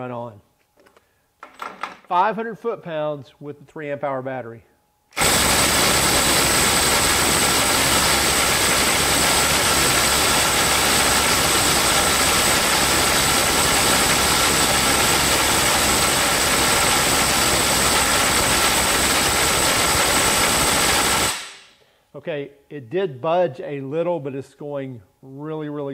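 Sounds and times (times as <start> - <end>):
impact driver rattling: 5.2 - 21.6.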